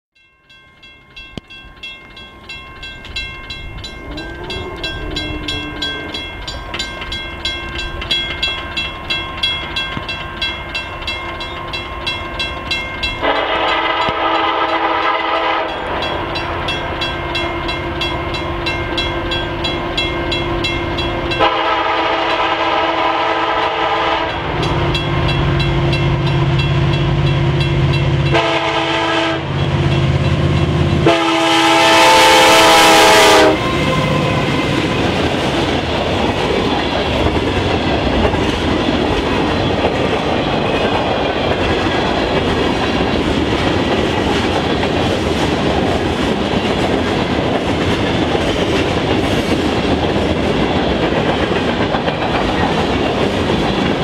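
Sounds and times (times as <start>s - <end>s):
level crossing bell ringing: 0.2s - 13.8s
locomotive engine rumble: 2.5s - 54.0s
locomotive air horn blasts: 4.1s - 6.2s, 13.2s - 15.8s, 21.4s - 24.6s, 28.3s - 29.6s, 31.0s - 35.0s.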